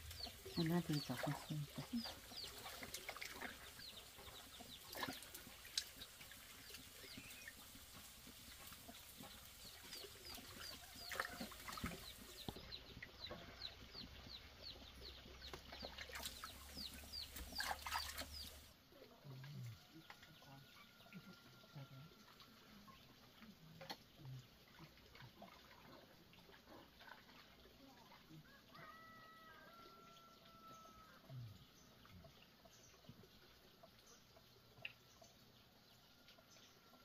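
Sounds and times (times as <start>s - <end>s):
water splashing in metal basin: 0.0s - 13.2s, 14.9s - 18.7s, 22.2s - 28.2s
chickens clucking and peeping: 0.0s - 24.0s.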